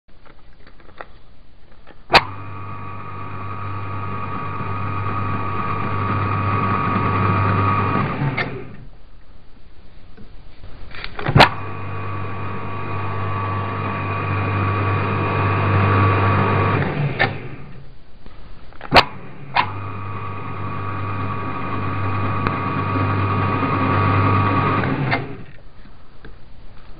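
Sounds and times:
lathe motor humming with whine: 0:02.2 - 0:08.8, 0:11.6 - 0:17.8, 0:19.4 - 0:25.5.

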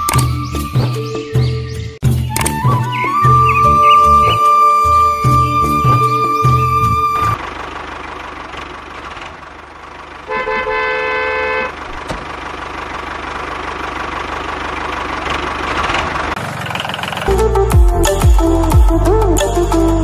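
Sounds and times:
tractor engine running: 0:00.0 - 0:19.8
horn sounding: 0:02.6 - 0:07.4, 0:10.3 - 0:11.8.

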